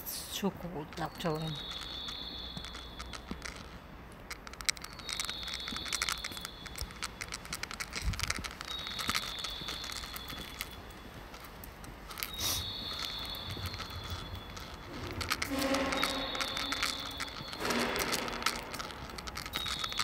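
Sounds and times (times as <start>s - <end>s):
recorded birdsong over speakers: 0.0s - 3.3s, 4.8s - 7.4s, 8.6s - 11.2s, 12.3s - 15.2s, 15.8s - 18.7s.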